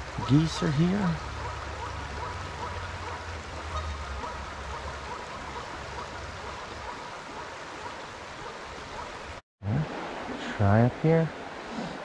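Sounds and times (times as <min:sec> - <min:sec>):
stream water rushing: 0:00.0 - 0:12.0.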